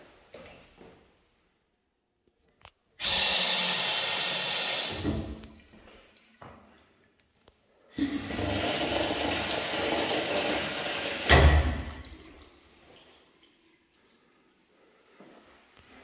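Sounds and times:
toilet flushing: 7.9 - 14.0.

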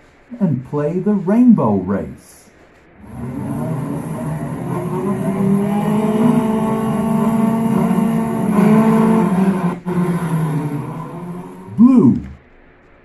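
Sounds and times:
race car engines running: 3.0 - 12.4.

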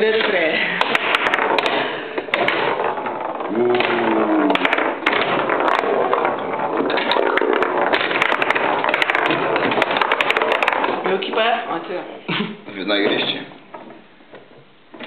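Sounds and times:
table football ball clacks: 0.0 - 12.0.

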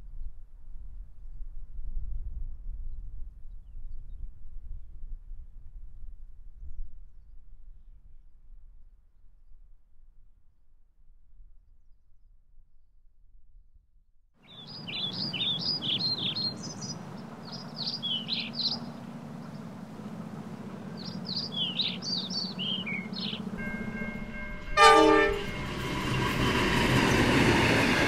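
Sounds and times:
birds chirping: 14.4 - 28.0
running train: 14.4 - 28.0
low hum: 15.2 - 28.0
train horn blast: 19.8 - 27.0.

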